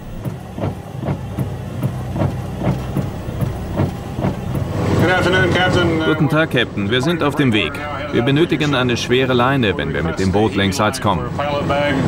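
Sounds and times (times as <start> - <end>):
boat engine rumble with knocks: 0.0 - 6.0.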